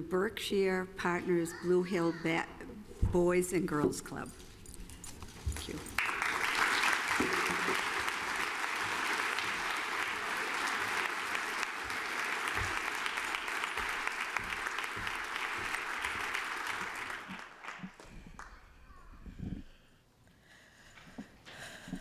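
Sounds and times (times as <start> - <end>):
large audience applauding: 6.0 - 18.6.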